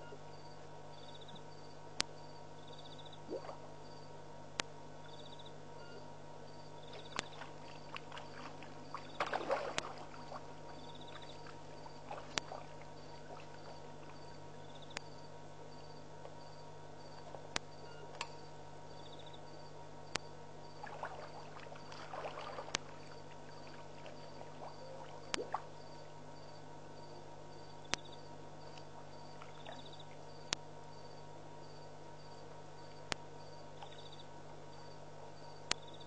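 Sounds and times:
steady low hum: 0:00.0 - 0:36.0
water splashing and sloshing: 0:06.8 - 0:14.7, 0:20.7 - 0:26.2, 0:28.7 - 0:30.3.

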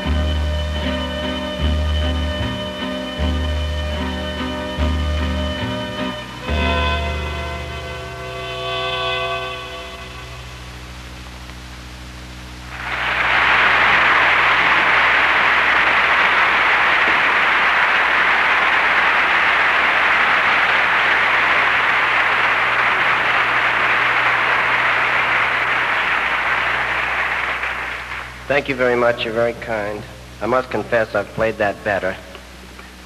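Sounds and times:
audience applause: 0:12.7 - 0:31.1.

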